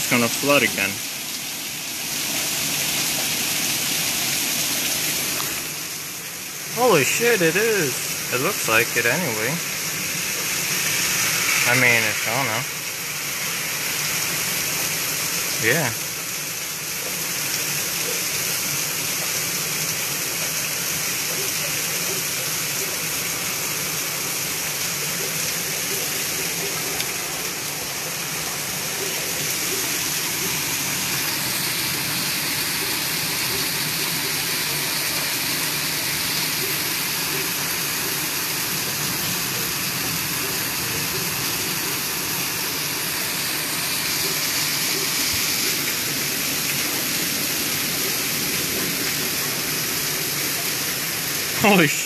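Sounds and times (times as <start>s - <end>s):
torrential rain pouring: 0.0s - 52.0s.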